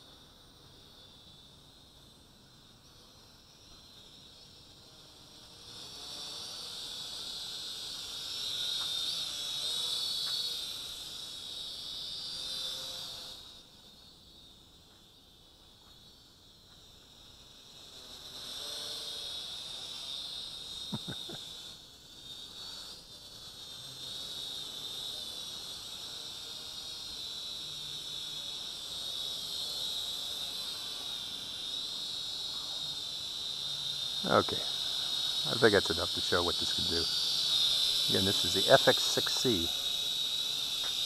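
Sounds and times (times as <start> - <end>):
drone propellers whining: 32.4 - 41.0.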